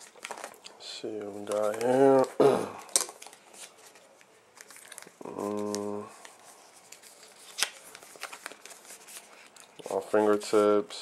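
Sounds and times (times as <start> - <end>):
cardboard and paper rustling: 0.0 - 11.0
man humming: 5.2 - 6.1.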